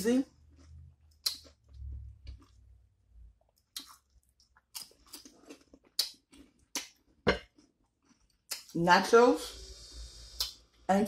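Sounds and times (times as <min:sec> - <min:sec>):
chip crunching: 0:00.4 - 0:02.6.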